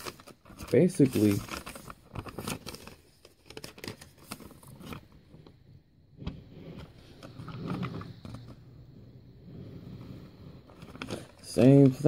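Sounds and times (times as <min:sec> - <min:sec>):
paper rustling: 0:00.0 - 0:05.2.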